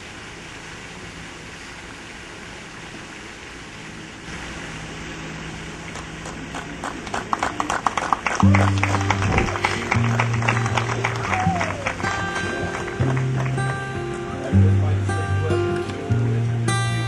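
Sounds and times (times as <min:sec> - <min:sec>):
steady background hiss: 0:00.0 - 0:17.0
guests applauding: 0:05.9 - 0:15.0
recorded music: 0:08.5 - 0:17.0.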